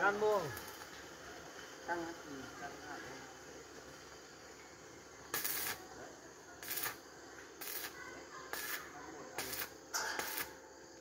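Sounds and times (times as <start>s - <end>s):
arc welding hiss: 0.0s - 11.0s.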